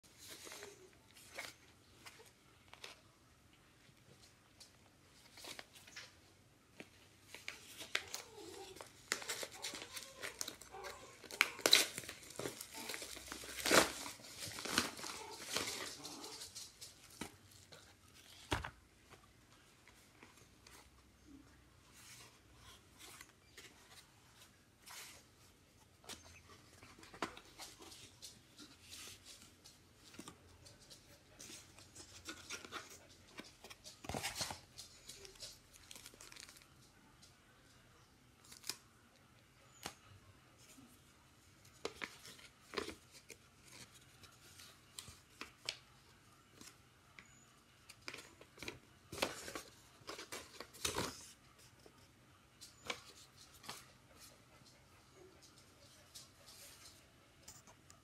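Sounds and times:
cardboard box and paper rustling: 6.8 - 21.0, 21.9 - 36.6, 46.6 - 51.9
plastic mailer tearing and crinkling: 7.3 - 17.5.

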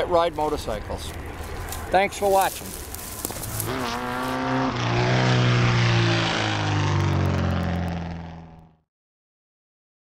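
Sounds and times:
motorcycle engine revving by: 3.2 - 8.8.

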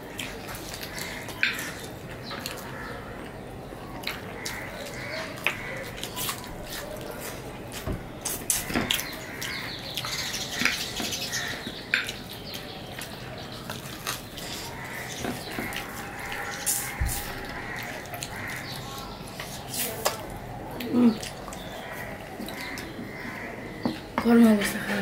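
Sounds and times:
wet chewing and lip smacking: 4.0 - 22.9.

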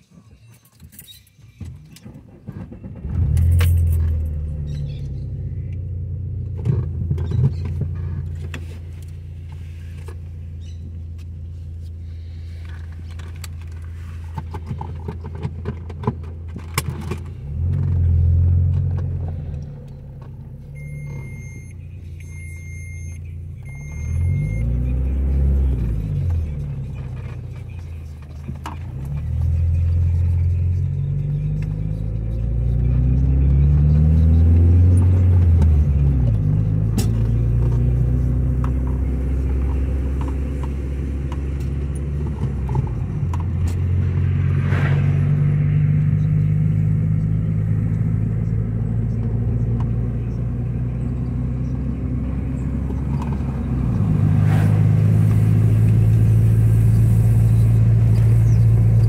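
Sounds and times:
car engine accelerating: 2.0 - 59.0
short electronic beeps: 20.7 - 25.1.

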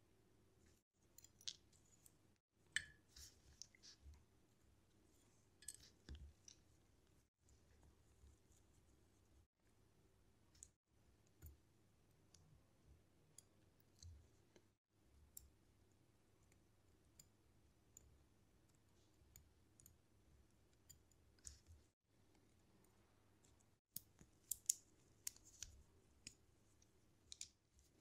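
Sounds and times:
small metallic clicks of tools: 1.0 - 2.2, 5.6 - 6.6, 23.5 - 26.4, 27.3 - 27.9.

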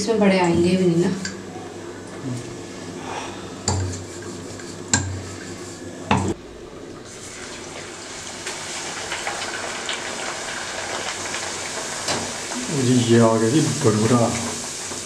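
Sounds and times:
dough sizzling in hot oil: 7.1 - 15.0.

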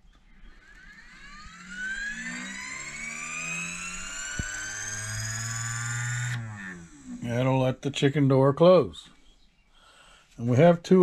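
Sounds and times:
actuator geared whine: 0.0 - 8.2
low hum: 0.0 - 9.7.

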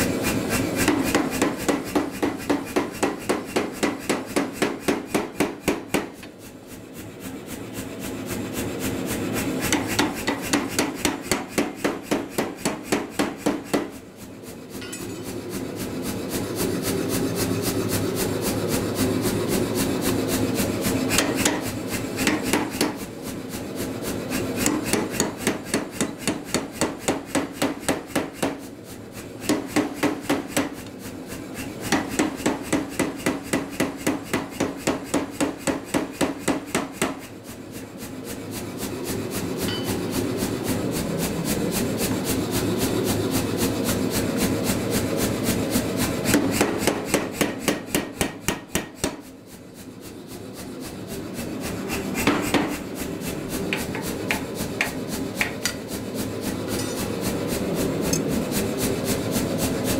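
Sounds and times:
power hammer rapid blows: 0.0 - 14.0, 20.6 - 23.2, 23.9 - 37.4, 45.7 - 49.3, 51.4 - 55.9.

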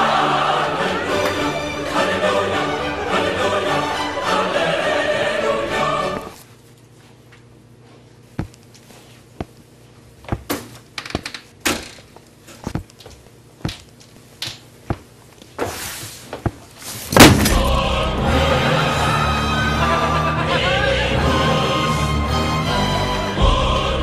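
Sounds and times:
choral music: 0.0 - 6.4, 17.2 - 24.0.

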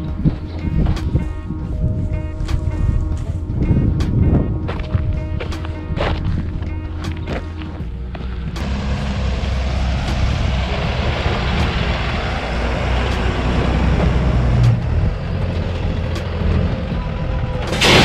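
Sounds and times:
diesel truck engine running: 0.0 - 18.0
tyres on dirt: 2.4 - 18.0
short loud burst: 17.7 - 18.0.

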